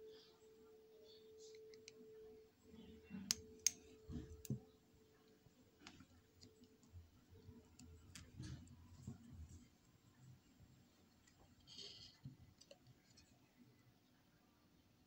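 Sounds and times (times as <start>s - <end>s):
soft handling noises: 2.7s - 13.9s.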